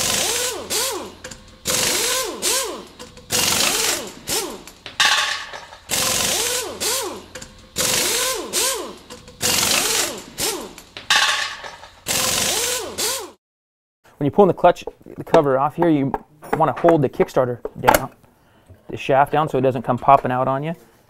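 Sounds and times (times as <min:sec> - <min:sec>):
power driver whirring: 0:00.0 - 0:11.0.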